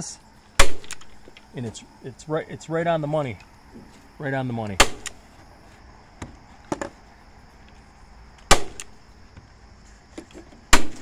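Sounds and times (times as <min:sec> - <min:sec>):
staple gun firing: 0:08.5 - 0:09.0.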